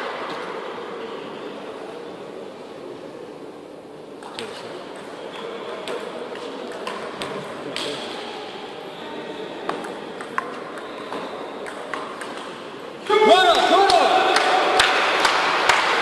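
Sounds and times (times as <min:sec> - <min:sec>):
low murmur in hall: 0:00.0 - 0:16.0.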